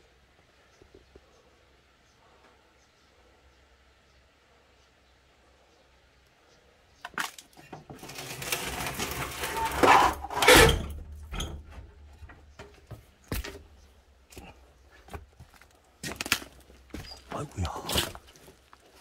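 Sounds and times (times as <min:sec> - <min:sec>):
scraping against wooden boards: 0:07.8 - 0:13.8.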